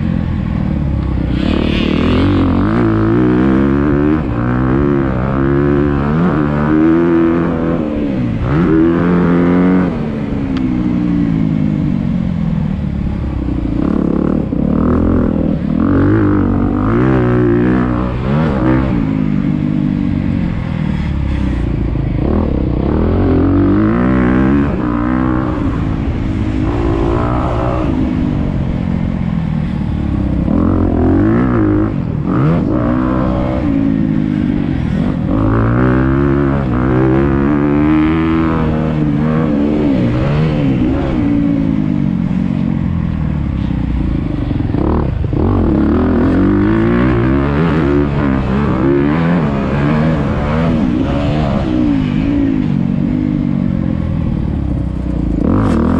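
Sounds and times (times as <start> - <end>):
dirt bike engine revving: 1.1 - 10.2, 20.4 - 29.0, 29.6 - 42.0, 44.5 - 52.7.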